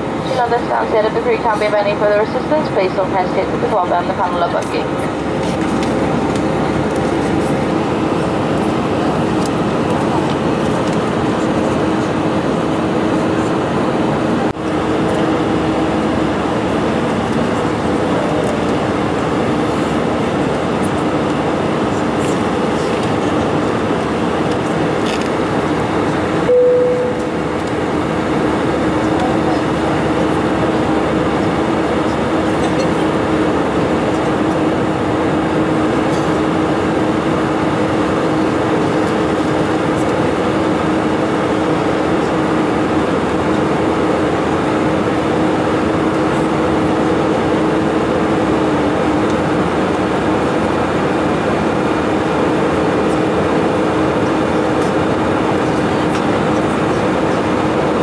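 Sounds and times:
airliner cabin noise: 0:00.0 - 0:58.0
steady two-note hum: 0:26.4 - 0:29.2.

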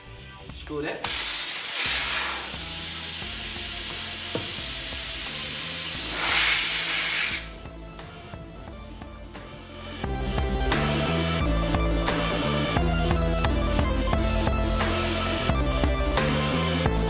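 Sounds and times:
compressed air hissing into tyre: 0:01.1 - 0:07.6.

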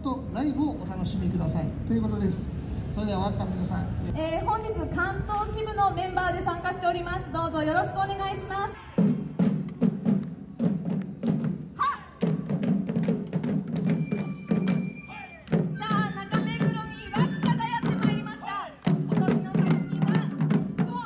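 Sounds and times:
hand-held drums beating: 0:09.0 - 0:21.0.

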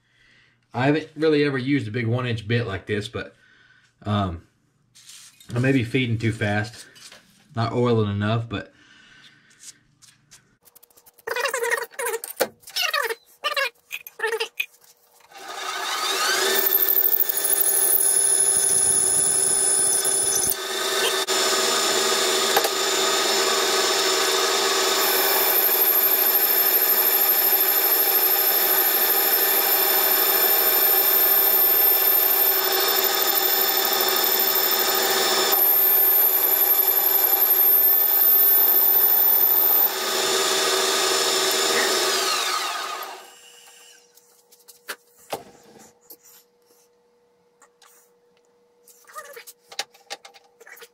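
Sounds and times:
lathe spinning down: 0:15.4 - 0:44.0
metal lathe whine: 0:15.4 - 0:44.0.

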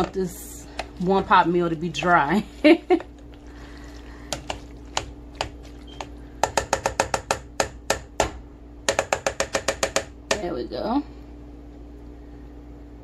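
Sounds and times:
spoon knocking against metal pot: 0:05.4 - 0:08.3.

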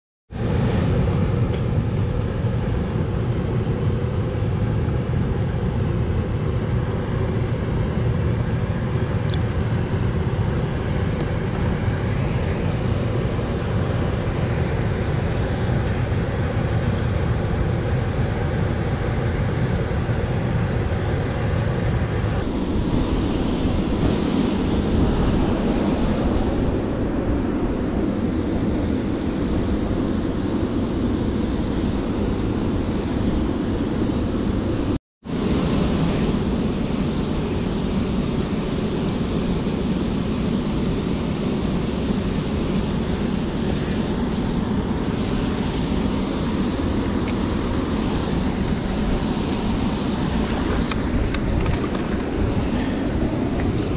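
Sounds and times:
wind buffeting microphone: 0:00.3 - 0:53.9.

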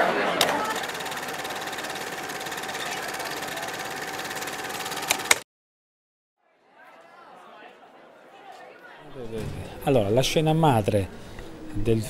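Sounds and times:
mechanical whirr with rapid ticking: 0:00.4 - 0:05.4
sharp clicks: 0:00.4 - 0:05.4.

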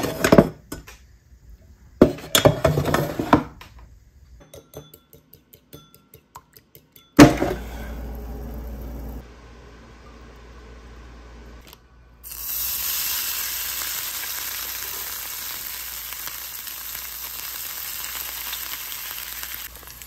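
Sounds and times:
air fryer basket clattering: 0:07.2 - 0:08.0
air fryer fan whooshing: 0:07.2 - 0:15.0.

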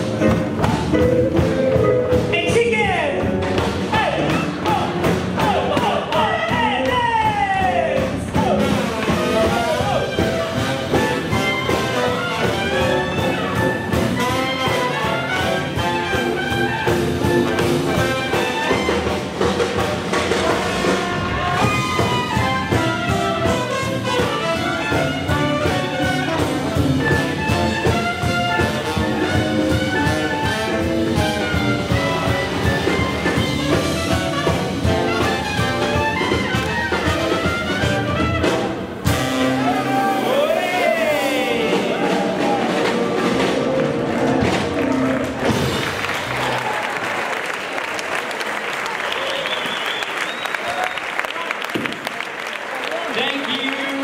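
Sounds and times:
swing jazz band playing: 0:00.0 - 0:47.6
trumpets playing melody: 0:08.4 - 0:45.8.

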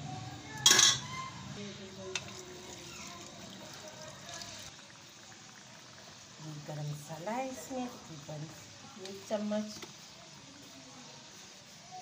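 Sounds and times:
liquid splashing into hot pan: 0:02.0 - 0:06.1
liquid pouring into pan: 0:02.0 - 0:07.7.

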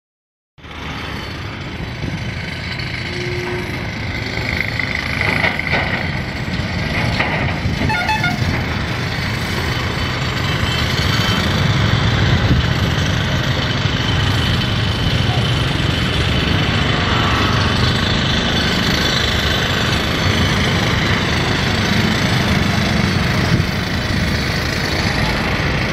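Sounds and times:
road traffic: 0:00.6 - 0:25.9
car horn toots: 0:03.1 - 0:03.8, 0:07.9 - 0:08.5.

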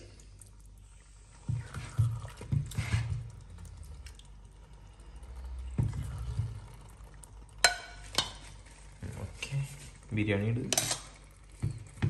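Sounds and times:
spoon clinking against dishes: 0:07.6 - 0:08.4, 0:10.7 - 0:11.2.

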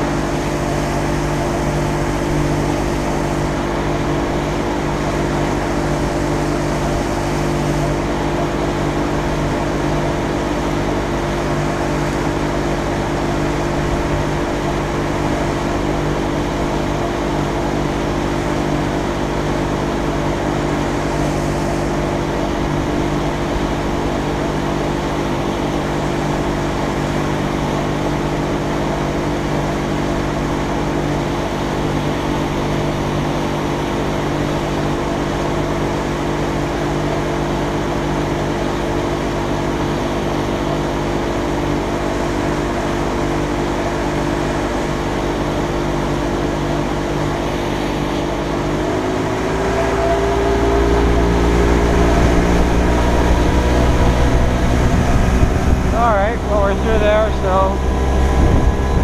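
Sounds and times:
outboard motor drone: 0:00.0 - 0:59.0.

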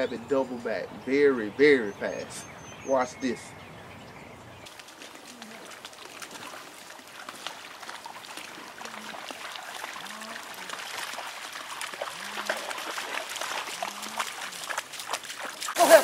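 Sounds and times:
dog splashing through water: 0:04.7 - 0:16.0.

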